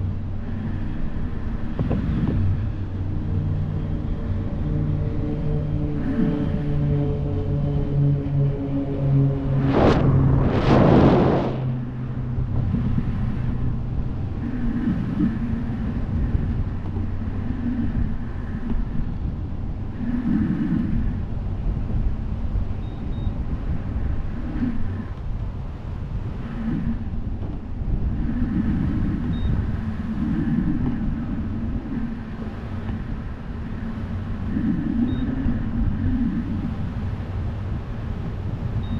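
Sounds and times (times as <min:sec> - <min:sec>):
wind rumbling on microphone: 0:00.0 - 0:38.9.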